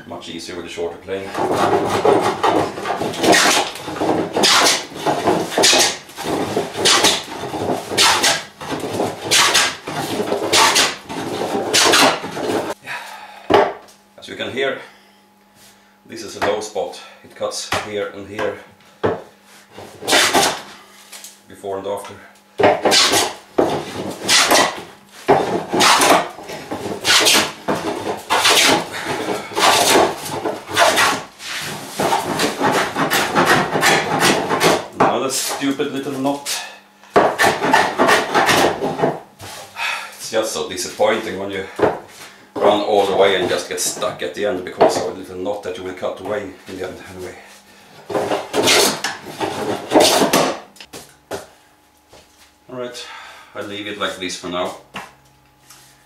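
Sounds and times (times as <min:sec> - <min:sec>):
hand plane rasping over wood: 0:01.4 - 0:12.8, 0:25.4 - 0:35.6.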